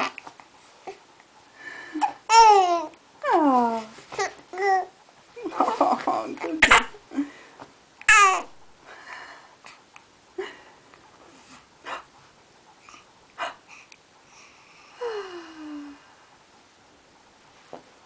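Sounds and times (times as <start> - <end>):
baby hiccupping: 8.0 - 8.5.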